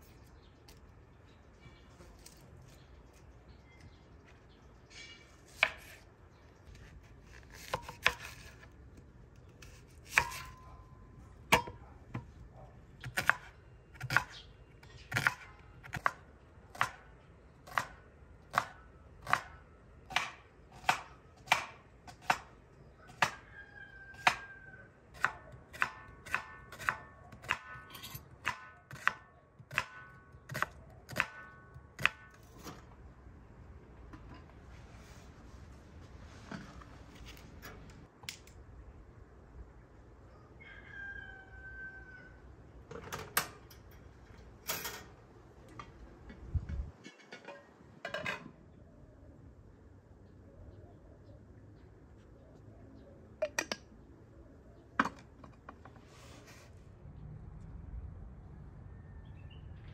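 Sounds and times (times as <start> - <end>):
knife chopping on a wooden board: 7.3 - 8.6, 13.0 - 14.3, 17.7 - 22.5, 25.2 - 32.3.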